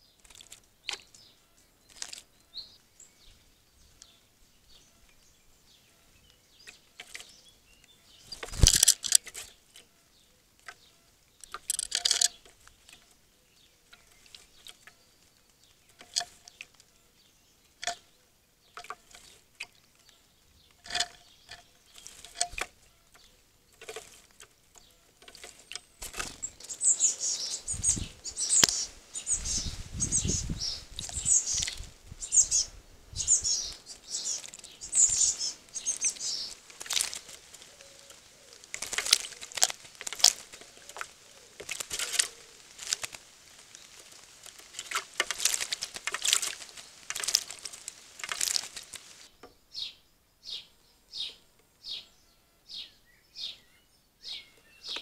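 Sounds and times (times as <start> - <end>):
birds splashing in water: 33.6 - 49.3.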